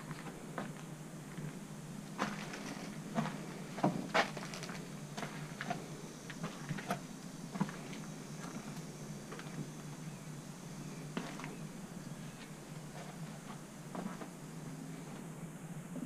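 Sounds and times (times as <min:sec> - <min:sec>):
footsteps crunching over debris: 0:00.0 - 0:09.9, 0:11.2 - 0:11.6
faint steady hum: 0:00.0 - 0:16.0.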